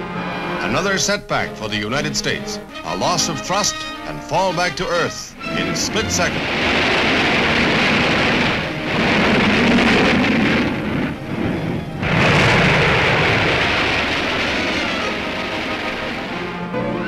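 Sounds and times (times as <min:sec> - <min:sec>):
rocket engine roar: 0:02.2 - 0:17.0
loud explosion: 0:05.4 - 0:16.8.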